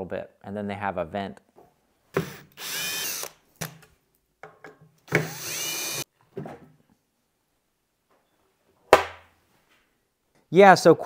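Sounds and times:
cordless drill whining: 2.2s - 3.4s, 5.1s - 6.1s.

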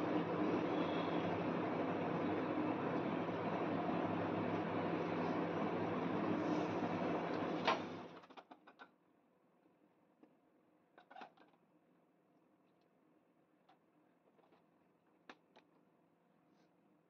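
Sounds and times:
whirring with low hum: 0.0s - 8.7s.

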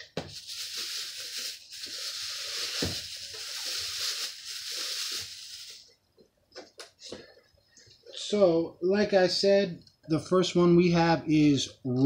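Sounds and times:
packing material rustling: 0.0s - 5.8s.

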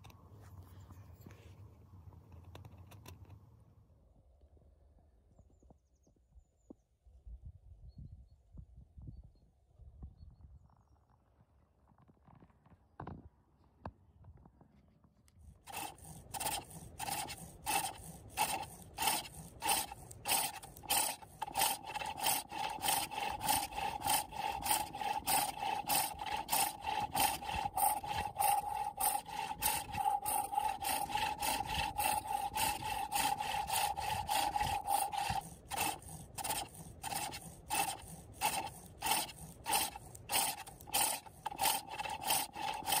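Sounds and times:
pole lathe tool scraping wood: 15.6s - 43.0s.

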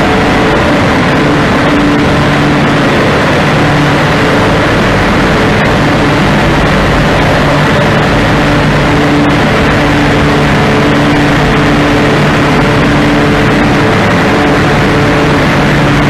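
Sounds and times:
low motor hum: 0.0s - 16.0s.

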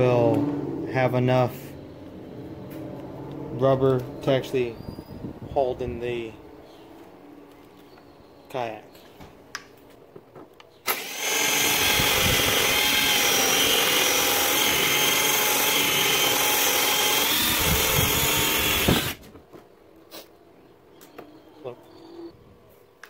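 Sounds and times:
cordless drill running: 10.9s - 19.2s.

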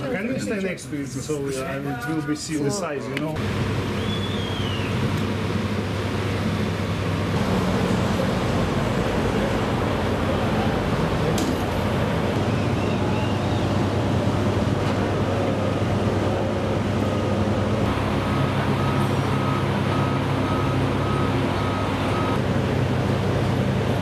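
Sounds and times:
dockside noise: 0.0s - 24.0s
low engine hum: 3.4s - 24.0s
truck reversing alarm beeps: 17.9s - 22.4s.

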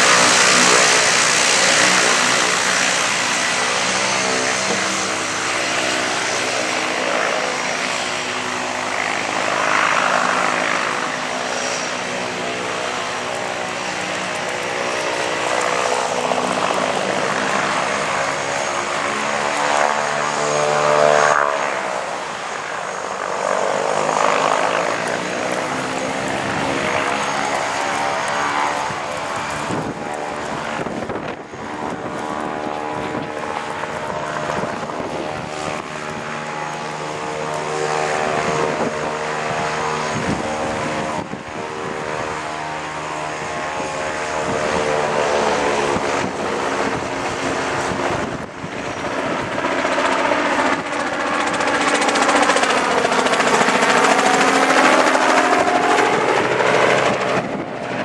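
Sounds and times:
helicopter passing: 0.0s - 58.0s
propeller aircraft engine running: 0.0s - 58.0s.

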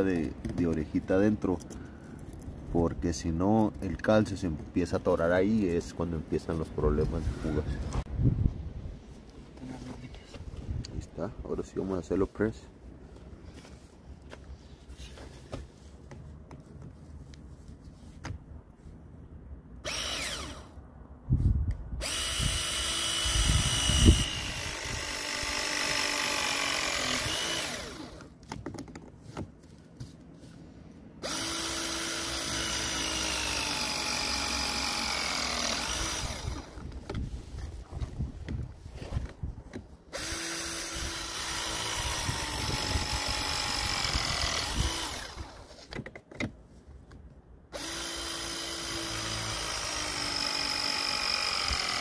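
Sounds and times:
press tool motor whining: 19.8s - 20.7s, 22.0s - 28.3s, 31.2s - 36.9s, 40.1s - 45.8s, 47.8s - 52.0s.

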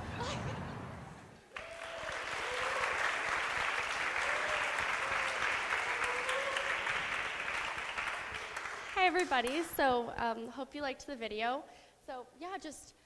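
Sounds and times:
audience applauding: 1.5s - 9.8s.

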